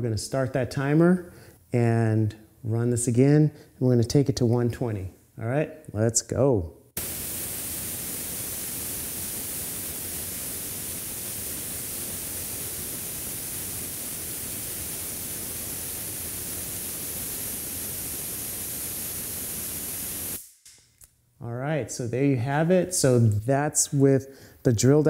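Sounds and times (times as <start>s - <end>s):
compressed air hissing: 7.0s - 20.6s.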